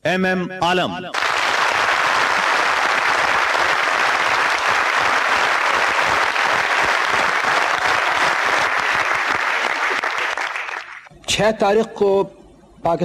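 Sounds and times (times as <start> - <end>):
audience applauding: 1.1 - 11.1.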